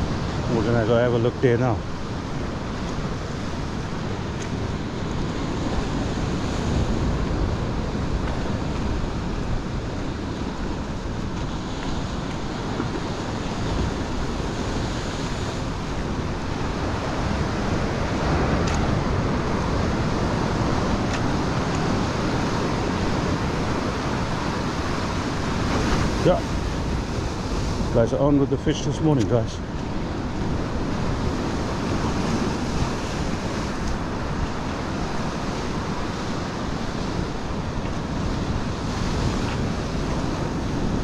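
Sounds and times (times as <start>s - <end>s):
surf breaking on rocks: 0.0s - 41.0s
wind buffeting microphone: 0.0s - 41.0s.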